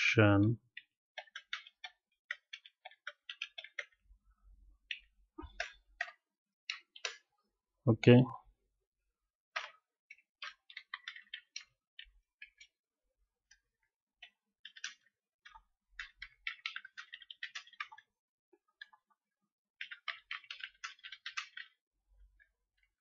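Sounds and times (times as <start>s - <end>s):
computer keyboard typing: 0.7s - 4.0s, 4.8s - 7.3s, 9.5s - 12.8s, 13.4s - 19.1s, 19.8s - 21.8s.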